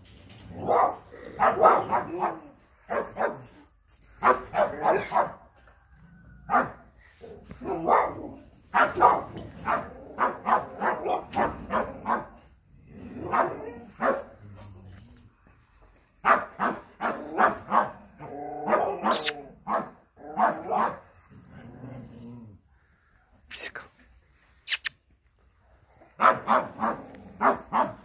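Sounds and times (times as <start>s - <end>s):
dogs barking: 0.6s - 3.6s, 4.2s - 5.4s, 6.5s - 6.8s, 7.5s - 12.5s, 13.1s - 14.4s, 16.2s - 21.1s, 26.1s - 28.0s.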